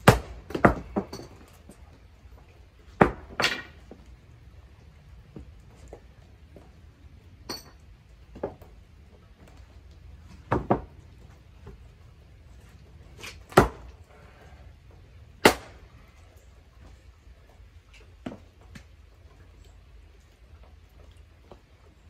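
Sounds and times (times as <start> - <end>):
axe splitting wood knocks: 0.0 - 1.1, 13.5 - 13.9.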